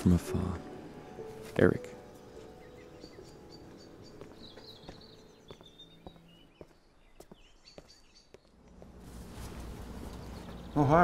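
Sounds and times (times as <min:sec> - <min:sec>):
faint birds chirping: 0:00.0 - 0:11.0
footsteps on hard path: 0:02.2 - 0:10.8.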